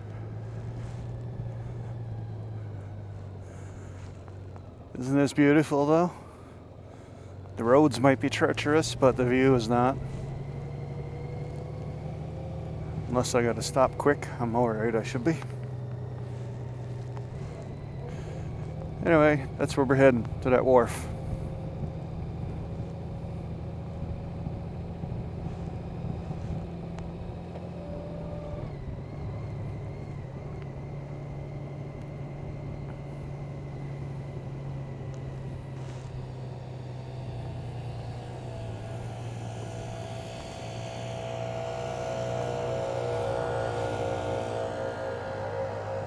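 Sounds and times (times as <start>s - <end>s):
motorcycle engine humming: 0.0s - 46.0s.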